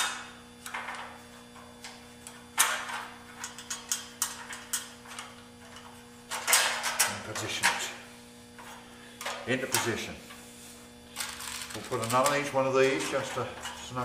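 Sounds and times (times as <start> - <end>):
metal parts clicking and clinking: 2.2 - 7.9, 11.2 - 14.0.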